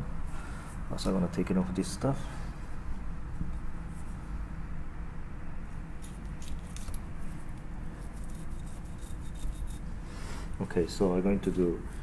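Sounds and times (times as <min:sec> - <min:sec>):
low room rumble: 0:00.0 - 0:12.0.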